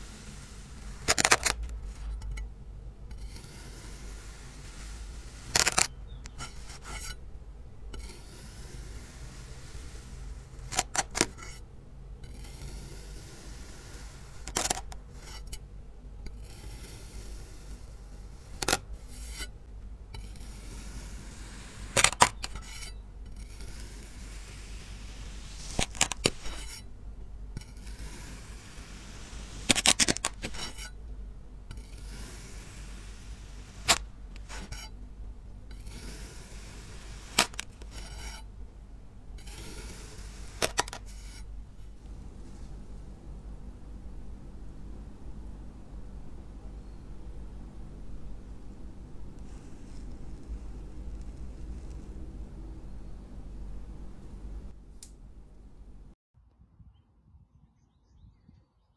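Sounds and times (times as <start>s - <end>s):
knife cutting: 20.2s - 26.9s, 27.6s - 31.0s, 31.7s - 34.9s, 35.7s - 38.4s.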